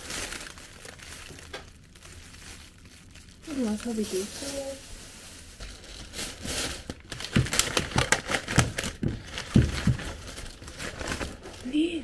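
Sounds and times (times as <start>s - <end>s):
food packaging crinkling: 0.0s - 12.0s
dull knocks: 9.0s - 10.2s.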